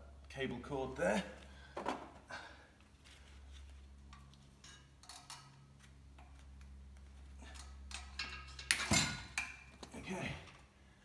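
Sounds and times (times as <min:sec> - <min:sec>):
steady low hum: 0:00.0 - 0:11.0
metal clunk and clatter: 0:07.8 - 0:09.8.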